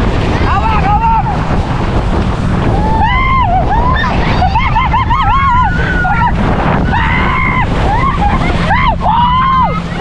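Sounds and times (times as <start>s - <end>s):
rushing water: 0.0s - 10.0s
wind buffeting microphone: 0.0s - 10.0s
people screaming and yelling: 2.5s - 10.0s.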